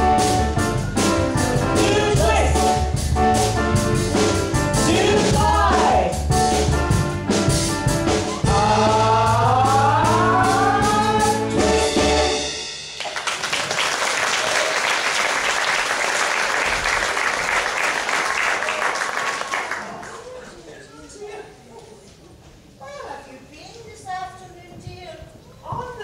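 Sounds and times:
cast singing with instruments: 0:04.8 - 0:06.2, 0:08.4 - 0:12.5
audience applause: 0:13.0 - 0:20.6.

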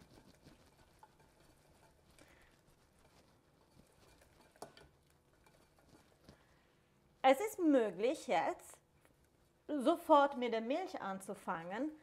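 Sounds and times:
whisk tapping and scraping a pot: 0:00.0 - 0:06.7.

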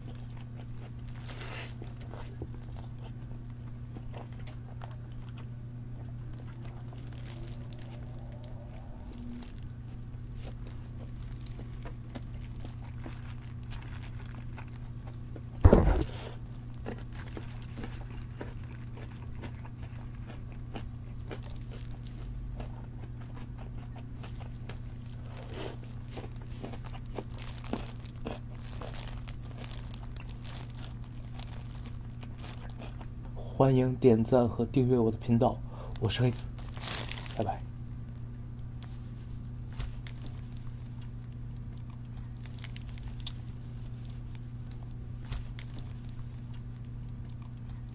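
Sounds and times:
plastic gloves crinkling: 0:00.0 - 0:02.8, 0:06.3 - 0:16.2, 0:16.8 - 0:19.0, 0:24.4 - 0:33.0, 0:35.9 - 0:38.2, 0:38.8 - 0:41.0, 0:42.4 - 0:46.5
crunching and gnawing: 0:00.0 - 0:33.5, 0:35.8 - 0:47.9
steady low hum: 0:00.0 - 0:47.9
loud knock: 0:15.6 - 0:16.1.

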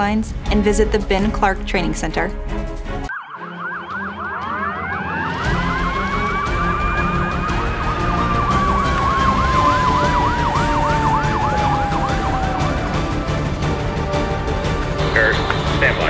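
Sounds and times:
siren yelp: 0:03.1 - 0:13.9
siren wail: 0:03.1 - 0:14.9.

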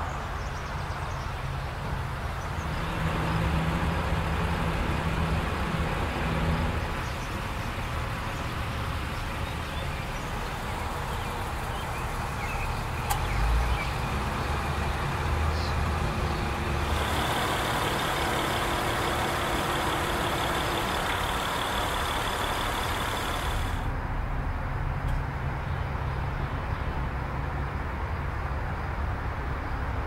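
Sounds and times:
car noise drone: 0:01.7 - 0:24.8.

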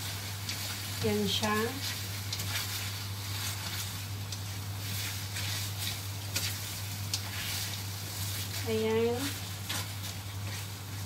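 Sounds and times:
food sizzling in a wok: 0:00.0 - 0:11.0
spatula scraping pan: 0:00.5 - 0:11.0.

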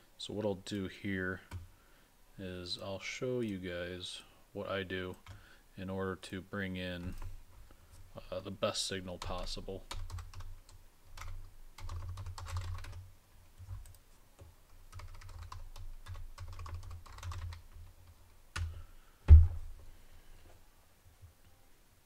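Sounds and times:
heavy thump: 0:19.3 - 0:19.9.

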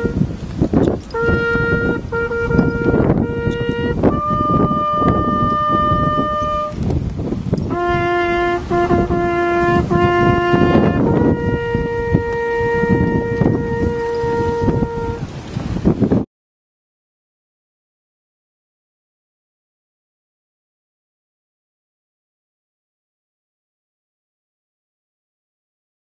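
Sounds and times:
solo trumpet playing: 0:00.0 - 0:00.4, 0:01.0 - 0:15.5.

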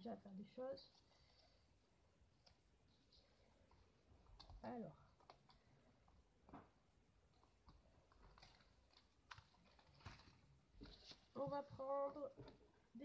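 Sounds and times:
paper rustling: 0:07.7 - 0:12.6.

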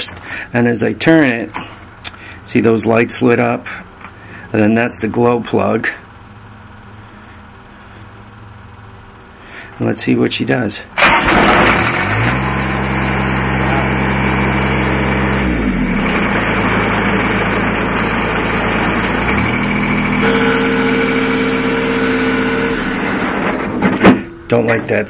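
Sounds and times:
diesel engine running: 0:11.0 - 0:24.8
steady extra tone: 0:16.1 - 0:25.0.

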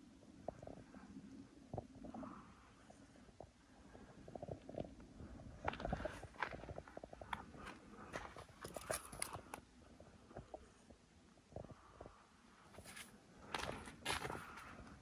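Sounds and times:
hiker footsteps crunching: 0:05.6 - 0:09.6, 0:12.7 - 0:14.9.

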